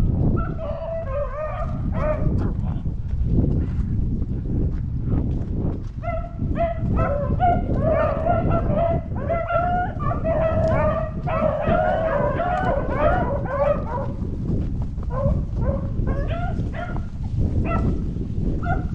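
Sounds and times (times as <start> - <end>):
steady low rumble: 0.0 - 18.9
beagles baying in chorus: 0.4 - 2.3, 6.1 - 14.2, 15.1 - 17.0.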